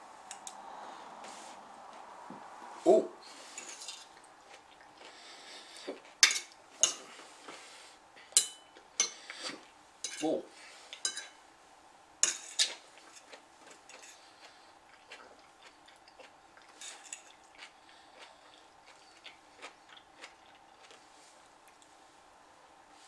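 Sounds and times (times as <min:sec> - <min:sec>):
faint steady hum: 0:00.0 - 0:23.0
fork clinking on a plate: 0:03.6 - 0:04.1, 0:06.2 - 0:07.1, 0:08.4 - 0:09.2, 0:10.0 - 0:10.3, 0:11.0 - 0:11.4, 0:12.2 - 0:13.3, 0:16.8 - 0:17.4.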